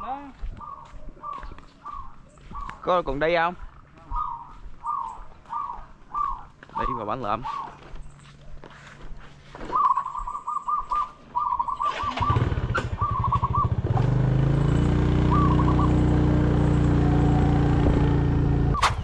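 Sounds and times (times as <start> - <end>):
bird calling: 0.0 - 8.3, 9.6 - 14.2, 15.1 - 17.0
motorcycle engine starting and idling: 11.7 - 19.0.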